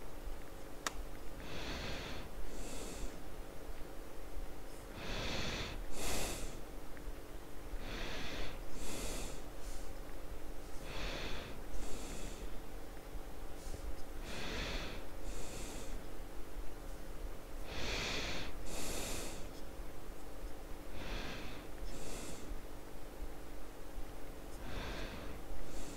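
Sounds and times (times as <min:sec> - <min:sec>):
person breathing heavily: 0:01.4 - 0:03.3, 0:04.9 - 0:06.6, 0:07.7 - 0:10.0, 0:10.7 - 0:12.6, 0:13.5 - 0:16.1, 0:17.6 - 0:19.6, 0:20.8 - 0:22.7, 0:24.5 - 0:25.9.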